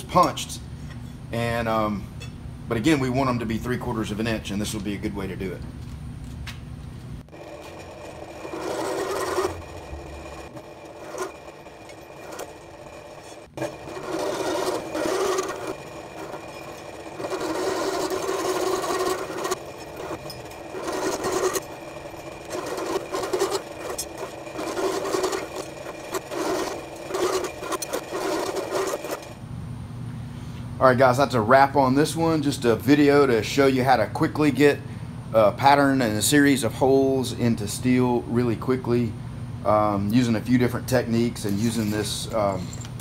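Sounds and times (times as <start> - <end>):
milling machine spindle humming: 7.2 - 29.4
step drill cutting steel: 7.3 - 29.4.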